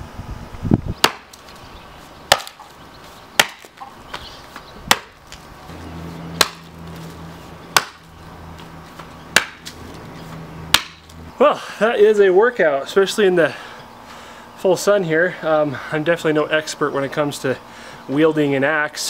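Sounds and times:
axe chopping into a stump: 1.0s - 1.4s, 2.3s - 2.7s, 3.4s - 3.9s, 4.9s - 5.2s, 6.4s - 6.7s, 7.7s - 8.1s, 9.3s - 9.8s, 10.7s - 11.2s.

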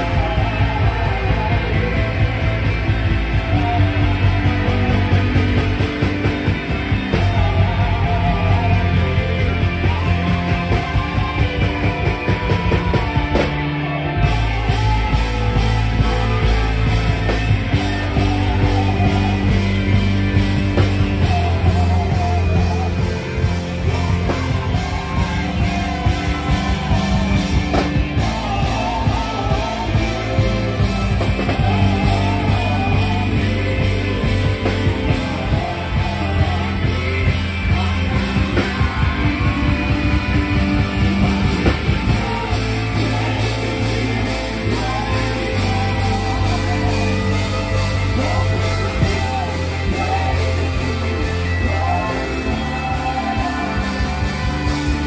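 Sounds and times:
live band music: 0.0s - 55.0s
person singing: 0.0s - 55.0s.

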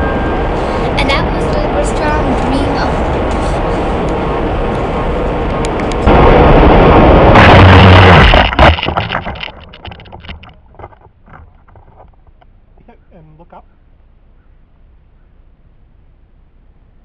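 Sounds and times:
wind rush: 0.0s - 10.9s
plane crashing into tree: 6.1s - 11.1s
clicks and crackles in branches: 8.2s - 12.5s.

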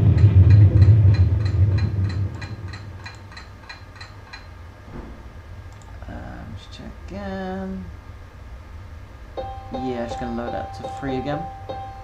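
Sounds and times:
low hum: 0.0s - 7.1s
light regular ticking: 0.1s - 4.6s.

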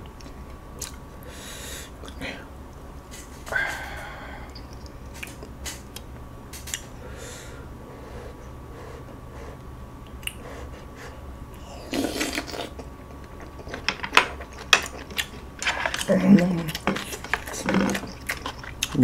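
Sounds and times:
person chewing food: 0.0s - 1.0s, 3.2s - 7.0s, 8.4s - 19.0s
low steady hum: 0.0s - 19.0s.

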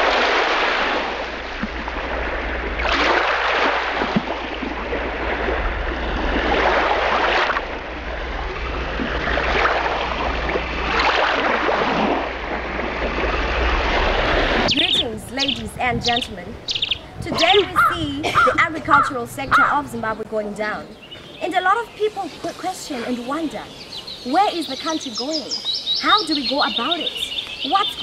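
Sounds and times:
steady low hum: 0.7s - 21.1s.

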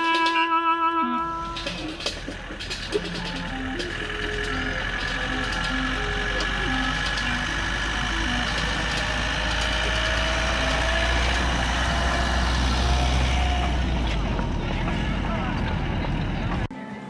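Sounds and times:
simple tune of short notes: 0.0s - 10.8s
miniature train engine rumble: 0.0s - 16.7s.

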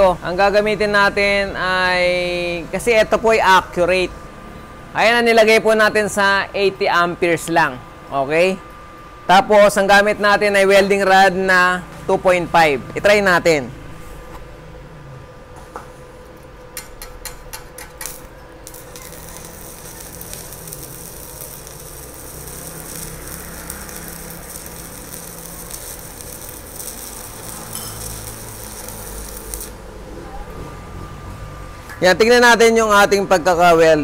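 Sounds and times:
welding arc striking cracks: 16.8s - 29.8s
welding arc crackling hiss: 17.5s - 29.9s.

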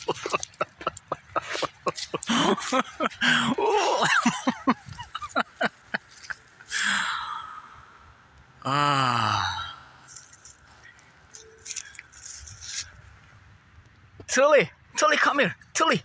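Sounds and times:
man sighing: 6.7s - 7.6s, 8.6s - 9.9s
man exhaling breathily: 6.7s - 7.8s.

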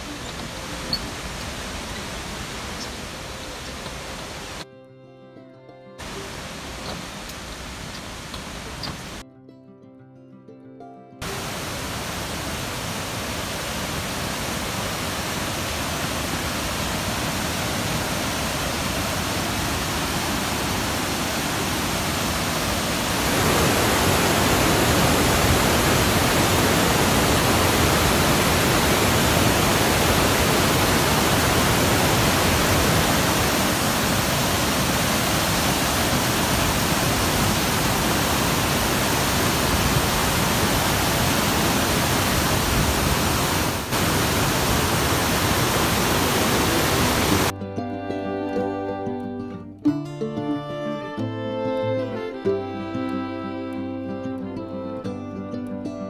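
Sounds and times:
river rushing over boulders: 0.0s - 4.6s, 6.0s - 9.2s, 11.2s - 47.5s.

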